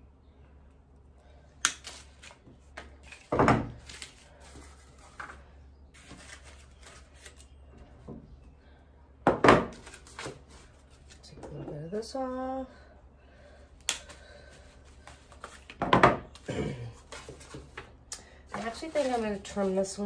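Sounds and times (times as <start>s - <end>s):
stems clicking and rustling: 1.6s - 7.6s, 13.8s - 20.0s.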